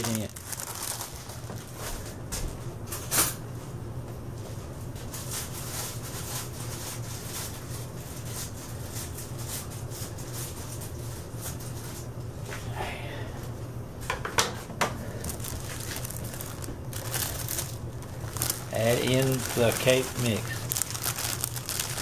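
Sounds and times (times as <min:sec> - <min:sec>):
plastic bag crinkling: 0:00.0 - 0:01.8, 0:15.0 - 0:22.0
low hum: 0:12.2 - 0:22.0.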